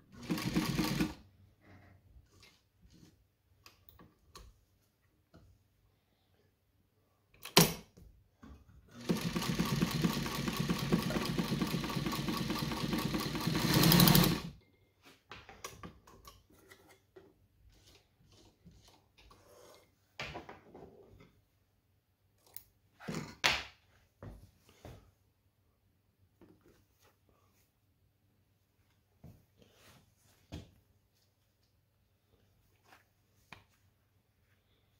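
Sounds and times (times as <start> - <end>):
sewing machine stitching leather: 0.1 - 1.2, 8.9 - 14.6.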